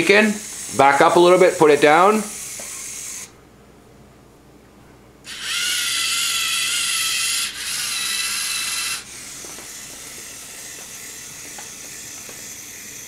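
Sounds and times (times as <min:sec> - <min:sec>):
servo motors whining: 0:02.2 - 0:03.3, 0:05.3 - 0:13.0
drive motors whirring: 0:05.3 - 0:13.0.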